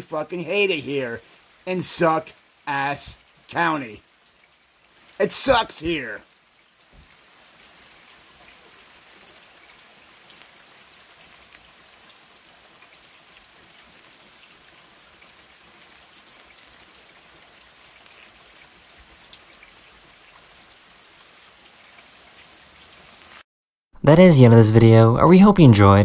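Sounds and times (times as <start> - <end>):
steady rain falling: 0.0 - 23.5
raindrop ticks: 8.1 - 23.4.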